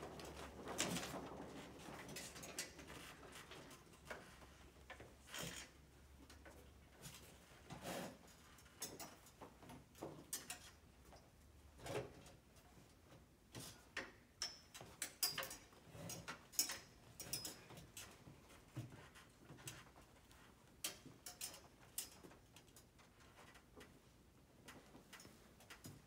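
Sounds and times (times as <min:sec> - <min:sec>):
light clinks: 0:14.4 - 0:18.1.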